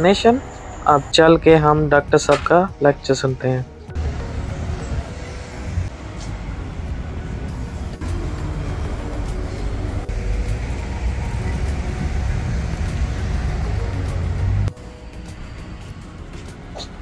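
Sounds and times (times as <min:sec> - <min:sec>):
vehicle rumble: 0:03.6 - 0:17.0.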